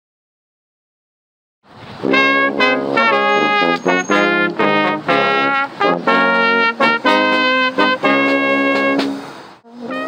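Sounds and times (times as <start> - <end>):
brass quintet playing: 2.0 - 10.0.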